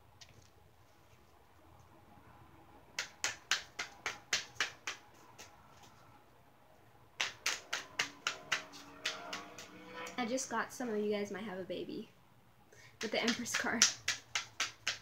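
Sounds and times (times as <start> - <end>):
cards being shuffled: 7.2 - 9.8.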